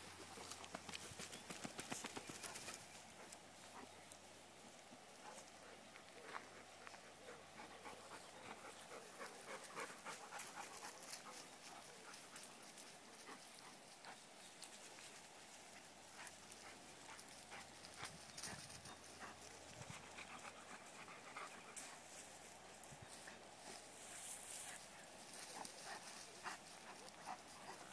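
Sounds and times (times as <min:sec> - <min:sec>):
dogs rustling through grass: 0:00.0 - 0:27.9
dog panting: 0:05.2 - 0:14.4, 0:15.7 - 0:22.3, 0:23.1 - 0:27.9.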